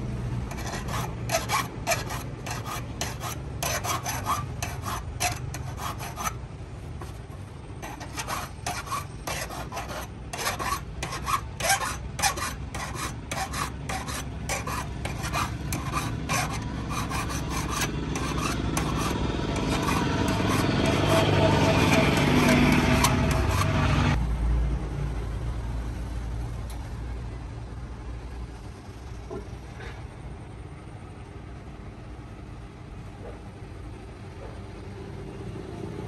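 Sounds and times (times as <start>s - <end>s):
file rasping on saw teeth: 0.5s - 6.4s, 7.0s - 24.2s.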